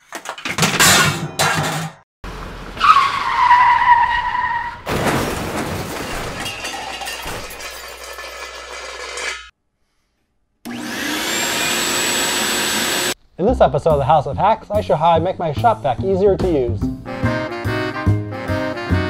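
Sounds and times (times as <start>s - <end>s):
shop vac toppling crash: 4.8s - 9.5s
scraping and rattling: 4.9s - 9.5s.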